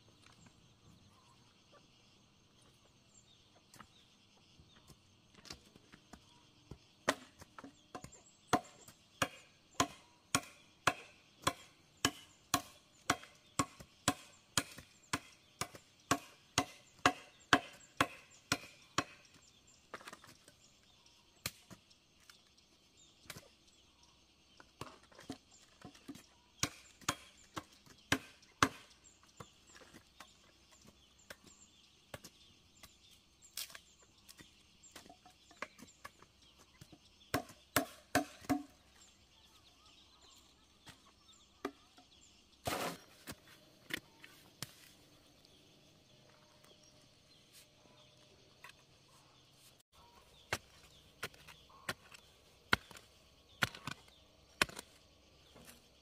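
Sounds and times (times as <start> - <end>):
hoe striking stony earth: 42.6 - 44.8, 50.4 - 55.9
soil scraping: 42.6 - 56.0.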